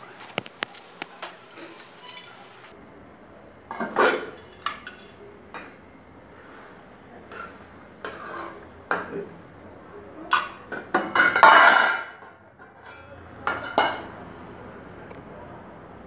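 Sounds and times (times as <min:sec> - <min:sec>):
dishes and utensils clattering: 0:00.0 - 0:02.7, 0:03.7 - 0:05.8, 0:07.3 - 0:09.3, 0:10.3 - 0:14.2.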